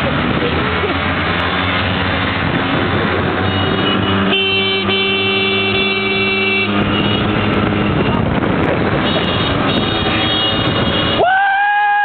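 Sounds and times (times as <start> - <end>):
road noise: 0.0 - 12.0
scooter engines running: 0.0 - 12.0
vehicle horn blast: 3.4 - 8.3, 9.0 - 11.2.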